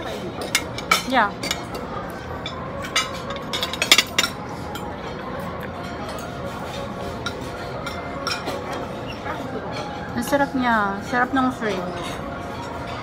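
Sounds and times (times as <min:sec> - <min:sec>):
cutlery clinking against plates: 0:00.0 - 0:13.0
murmur of voices: 0:00.0 - 0:13.0.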